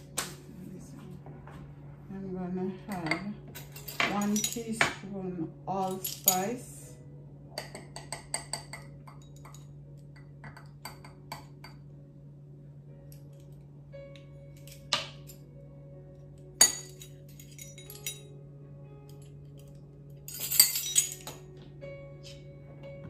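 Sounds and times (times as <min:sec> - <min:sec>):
steady low hum: 0:00.0 - 0:23.0
metal spoons clinking on a sieve: 0:02.9 - 0:04.9, 0:05.8 - 0:06.7, 0:16.6 - 0:18.3, 0:20.3 - 0:21.4.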